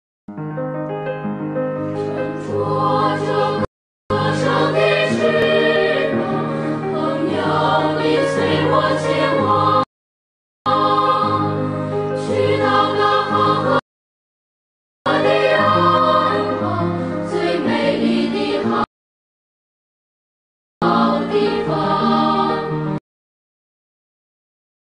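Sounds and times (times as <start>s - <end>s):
music with choral singing: 2.0s - 9.9s, 10.7s - 13.8s, 15.1s - 18.9s, 20.8s - 23.0s.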